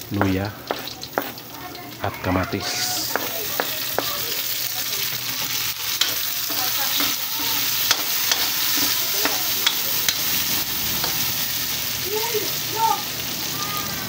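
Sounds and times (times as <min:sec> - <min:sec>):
food sizzling in hot oil: 0:00.0 - 0:14.0
spatula clicking against pan: 0:05.9 - 0:10.3.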